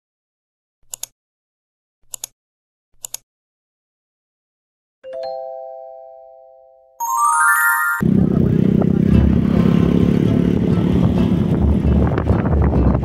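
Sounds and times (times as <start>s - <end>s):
chime of steady tones: 7.0s - 8.0s.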